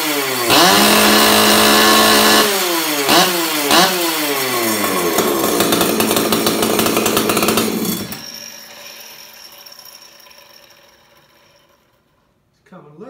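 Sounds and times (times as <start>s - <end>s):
chainsaw engine at high revs: 0.0s - 9.2s.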